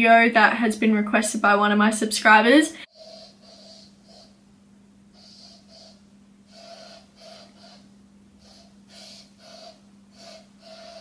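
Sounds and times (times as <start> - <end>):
faint steady hum: 0.0 - 11.0.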